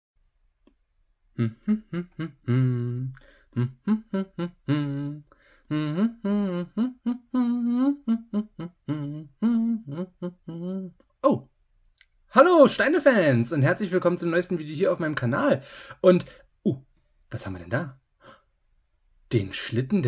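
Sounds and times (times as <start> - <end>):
person humming a tune: 1.4 - 11.4.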